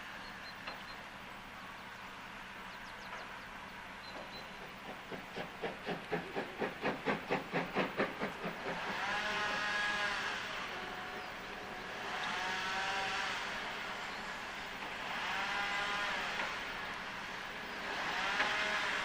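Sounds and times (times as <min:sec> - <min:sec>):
steam locomotive exhaust beats: 0:02.2 - 0:19.0
steam hissing: 0:04.5 - 0:19.0.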